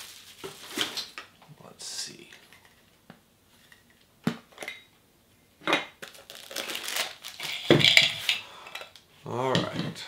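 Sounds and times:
plastic shrink wrap crinkling: 0.0s - 1.3s, 6.0s - 8.3s.

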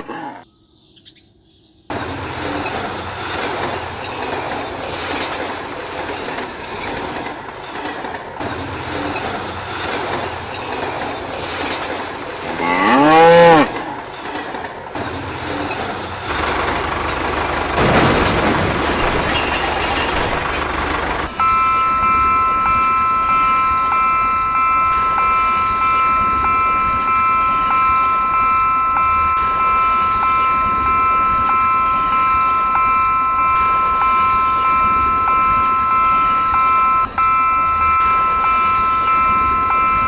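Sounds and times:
toy train electronic horn chord: 12.5s - 13.8s, 21.4s - 23.3s.

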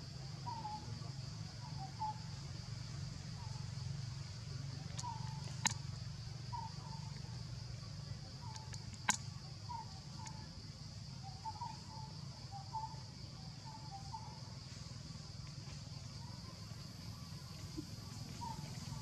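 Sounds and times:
high insect drone: 0.0s - 19.0s
sharp click: 8.6s - 9.2s.

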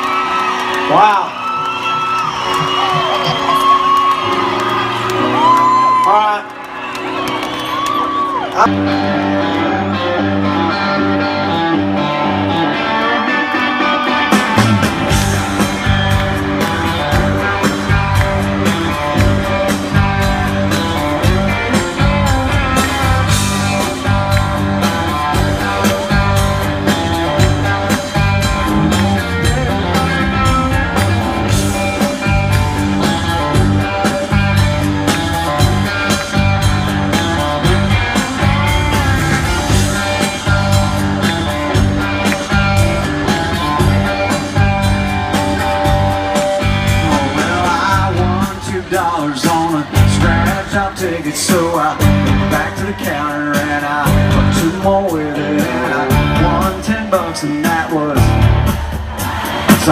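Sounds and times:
country-rock band playing: 0.0s - 59.9s
drums: 0.0s - 59.9s
electric guitar: 0.0s - 59.9s
deep bass: 14.6s - 48.9s, 49.9s - 51.0s, 51.9s - 53.0s, 54.0s - 57.2s, 58.2s - 59.9s.

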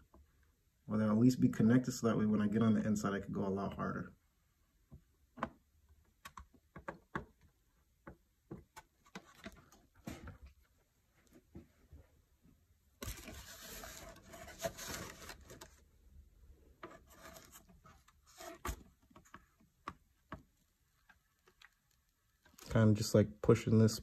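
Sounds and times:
small knocks and clicks: 4.9s - 9.9s
faint scraping on plastic: 13.0s - 15.8s, 16.8s - 19.4s.

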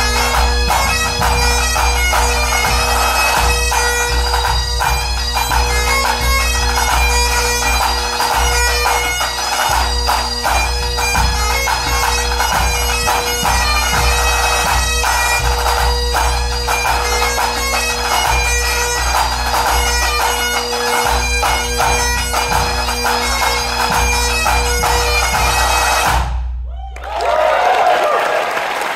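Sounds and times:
bagpipes playing melody: 0.0s - 26.2s
bass drum beating: 9.7s - 20.0s.

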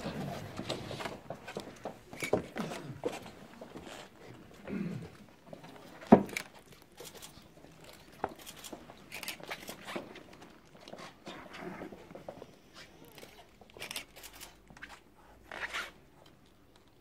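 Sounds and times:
pen and paper clicks: 6.2s - 9.9s, 13.1s - 14.6s
paper pages turning: 6.3s - 11.2s.

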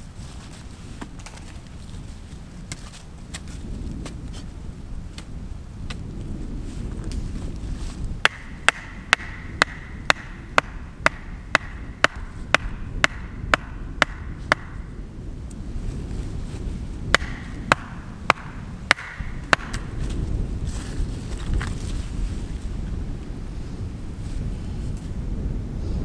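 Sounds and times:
wind rumble on microphone: 0.0s - 26.0s
axe head knocking wooden stake: 8.2s - 14.8s, 17.1s - 19.9s.

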